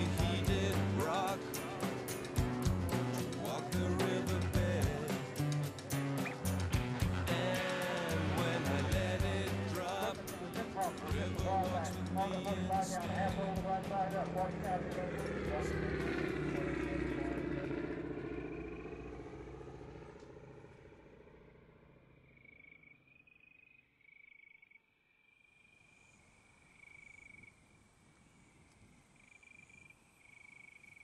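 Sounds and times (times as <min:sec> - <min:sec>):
propeller airplane engines droning: 0:00.0 - 0:22.2
insects chirping in bursts: 0:22.3 - 0:31.0.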